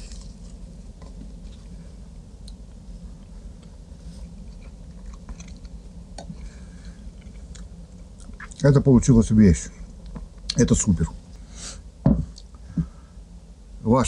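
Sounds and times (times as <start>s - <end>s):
low steady hum: 0.0s - 14.0s
person chewing: 4.2s - 8.6s.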